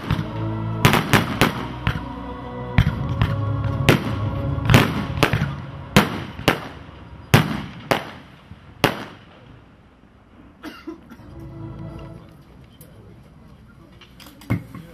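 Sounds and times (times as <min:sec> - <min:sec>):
firework bangs: 0:00.0 - 0:02.1, 0:02.8 - 0:09.6.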